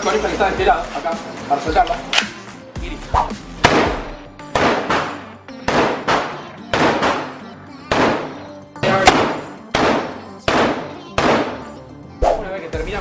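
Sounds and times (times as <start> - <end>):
rifle shots echoing indoors: 3.6 - 8.3, 9.0 - 11.6.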